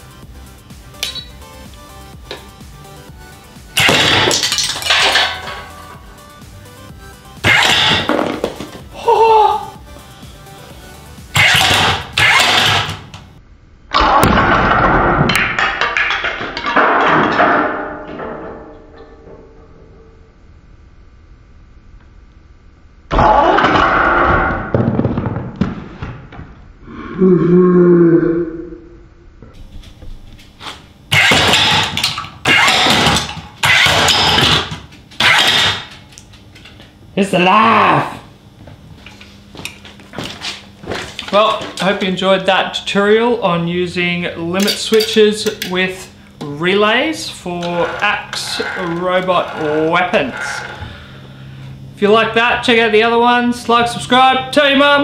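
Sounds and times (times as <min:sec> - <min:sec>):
robot axe motor bursts: 0:11.4 - 0:13.0, 0:31.1 - 0:35.9.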